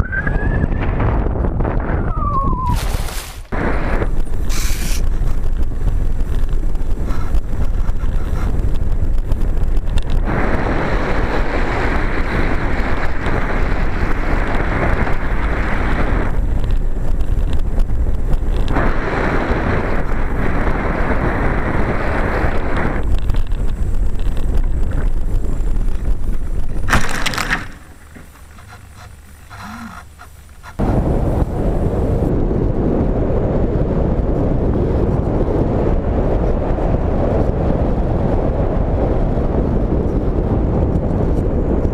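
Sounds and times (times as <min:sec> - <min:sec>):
wind rushing over microphone: 0:00.0 - 0:41.9
rough crunch of landing in grass: 0:02.7 - 0:03.6, 0:26.8 - 0:28.6.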